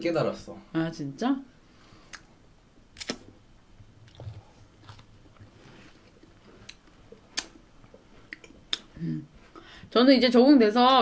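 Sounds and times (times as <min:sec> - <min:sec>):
chewing and mouth sounds: 0:04.0 - 0:09.5
sharp wet mouth clicks: 0:06.6 - 0:07.6, 0:08.3 - 0:09.0.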